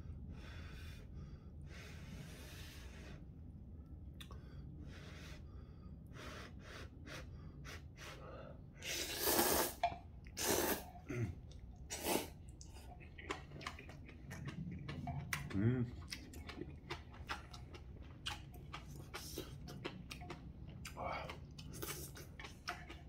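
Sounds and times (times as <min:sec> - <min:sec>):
soft sips and breaths: 0:00.5 - 0:03.4, 0:04.2 - 0:15.1
person slurping noodles: 0:08.8 - 0:11.3, 0:11.9 - 0:14.0.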